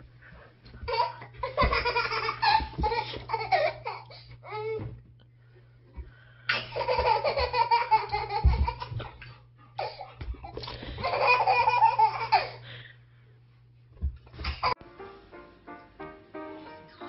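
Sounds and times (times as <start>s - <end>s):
toddler giggling: 0.9s - 4.1s, 6.5s - 12.6s.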